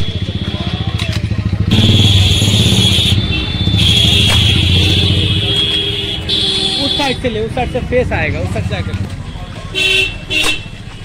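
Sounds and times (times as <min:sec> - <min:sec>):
engine running: 0:00.1 - 0:06.4.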